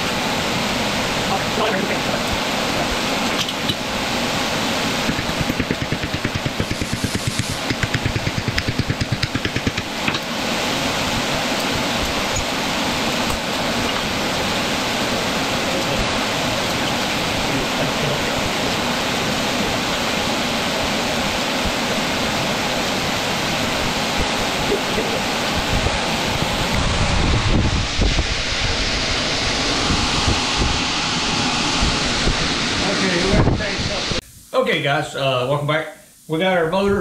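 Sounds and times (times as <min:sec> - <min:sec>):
large fan rushing: 0:00.0 - 0:34.2.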